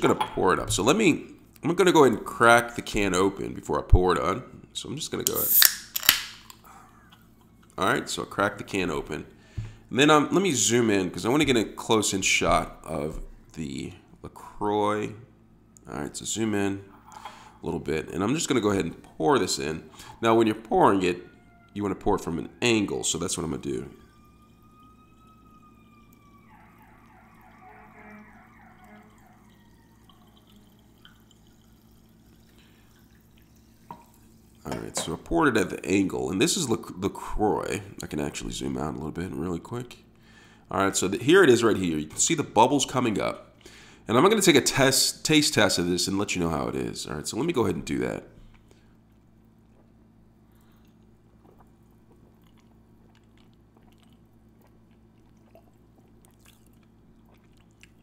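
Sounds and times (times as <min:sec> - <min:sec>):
low hum: 0:05.2 - 0:35.3
sparkling water pouring into glass: 0:05.3 - 0:06.5, 0:24.0 - 0:34.7
wavering siren-like tone: 0:18.4 - 0:31.8.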